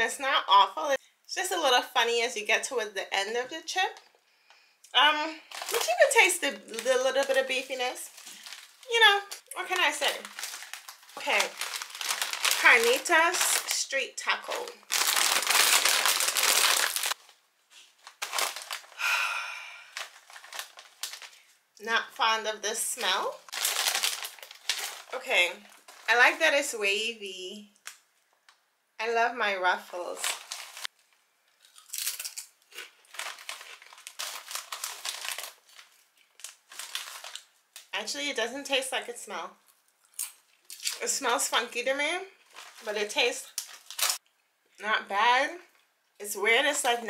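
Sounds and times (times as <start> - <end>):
chip bag crinkling: 5.4 - 13.8, 14.4 - 21.6, 23.0 - 26.2, 29.9 - 37.9, 39.7 - 41.0, 42.4 - 44.2.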